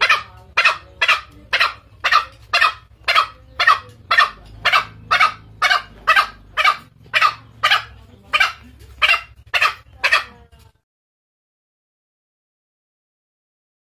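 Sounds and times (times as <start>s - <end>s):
harsh bird calls: 0.0s - 10.6s.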